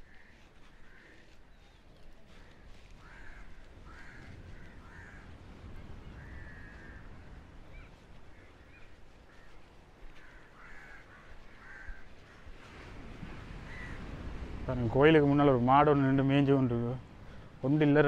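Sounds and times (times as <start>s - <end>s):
crows cawing: 0.0s - 12.8s, 13.5s - 14.4s.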